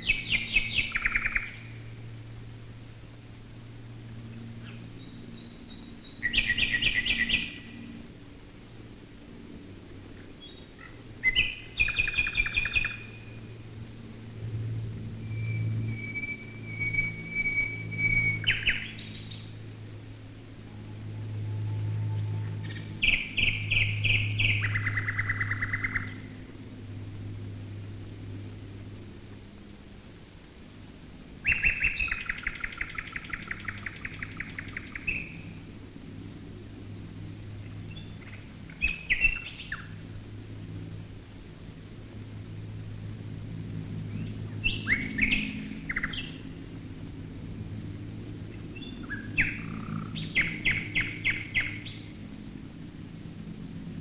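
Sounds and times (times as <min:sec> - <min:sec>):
nightingale singing: 0:00.0 - 0:01.8, 0:04.6 - 0:07.9, 0:10.4 - 0:13.5, 0:15.2 - 0:19.6, 0:20.6 - 0:26.3, 0:31.4 - 0:35.6, 0:37.9 - 0:40.0, 0:44.1 - 0:46.5, 0:48.5 - 0:52.1
drone of aircraft engines: 0:00.0 - 0:54.0.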